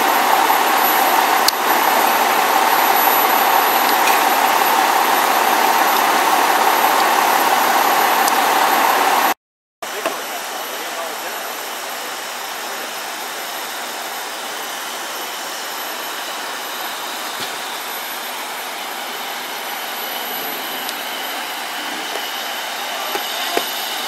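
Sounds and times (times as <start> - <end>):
fire engines running: 0.0 - 24.0.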